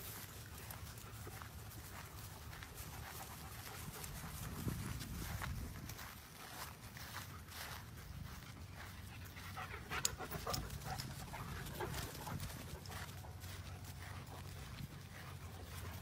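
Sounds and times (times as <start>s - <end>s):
dog panting: 8.7s - 16.0s.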